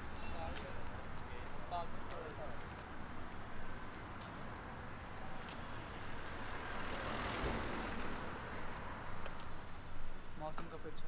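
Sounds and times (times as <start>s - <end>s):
street traffic: 0.0s - 11.0s
vehicle passing: 5.6s - 9.2s.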